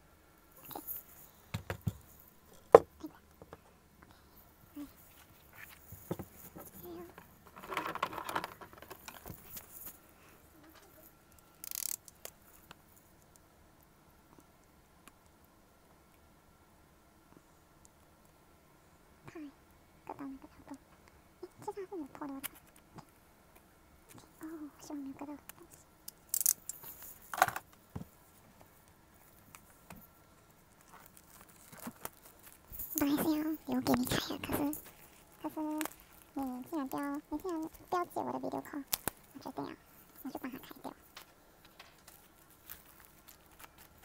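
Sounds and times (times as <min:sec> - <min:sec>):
cellophane wrap rustling: 0:30.7 - 0:38.0, 0:41.6 - 0:44.0
loud cellophane crinkle: 0:30.8 - 0:33.0, 0:41.8 - 0:44.0.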